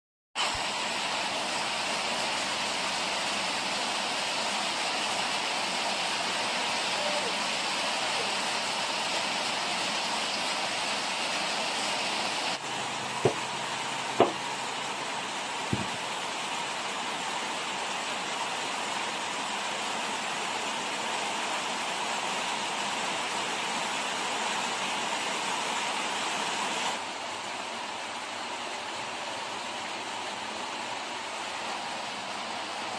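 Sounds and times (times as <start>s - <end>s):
rain hissing: 0.4s - 32.9s
cleaver chopping on wooden board: 13.2s - 13.4s, 14.2s - 14.4s, 15.7s - 16.0s.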